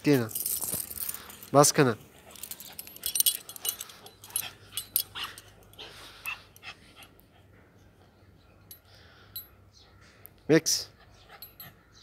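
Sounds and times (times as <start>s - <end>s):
metal chain leash clinking: 0.0s - 6.7s, 11.3s - 11.8s
puppy panting: 10.9s - 12.0s.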